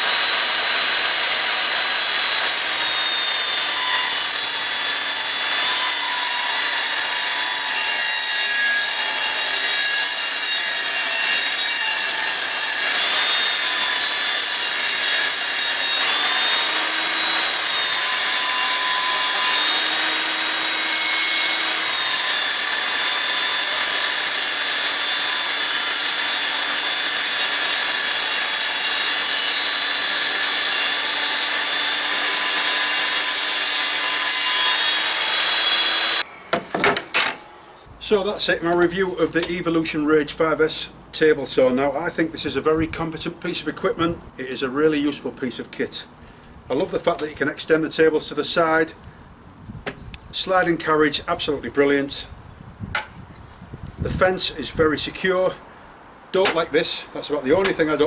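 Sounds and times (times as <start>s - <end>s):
table saw cutting wood: 0.0s - 37.4s.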